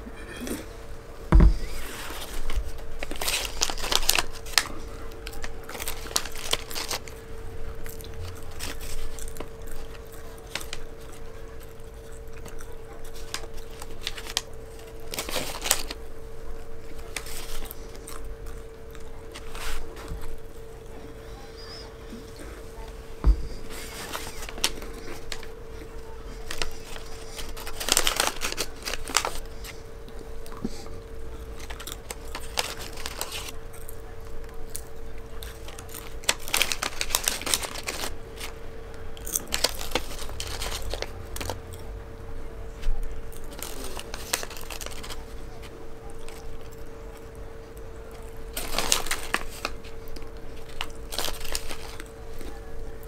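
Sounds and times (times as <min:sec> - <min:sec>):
faint steady hum: 0:00.0 - 0:53.0
paper sleeve crinkling: 0:01.5 - 0:41.8, 0:42.8 - 0:53.0
chewing: 0:01.6 - 0:41.9.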